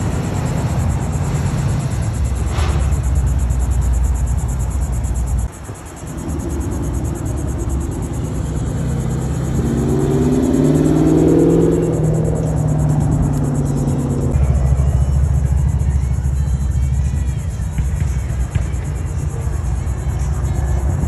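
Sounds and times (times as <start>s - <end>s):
car engine accelerating: 0.0s - 16.4s
pickup truck engine rumble: 0.0s - 21.0s.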